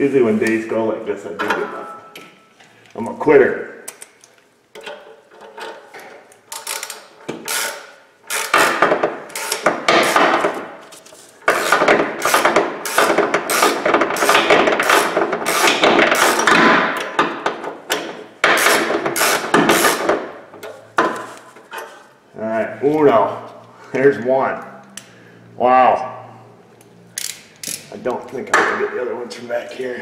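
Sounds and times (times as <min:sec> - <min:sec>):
metallic clicks of hand tool: 0:27.2 - 0:27.9.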